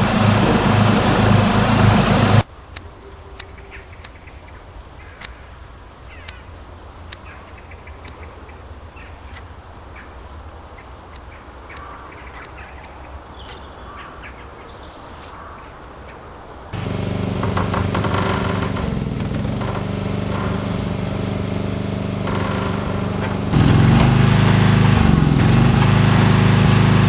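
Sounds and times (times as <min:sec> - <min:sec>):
low rumble: 0:00.0 - 0:02.4
engine running: 0:00.0 - 0:02.5, 0:16.8 - 0:27.0
bird chirps: 0:02.9 - 0:05.4, 0:10.8 - 0:16.2.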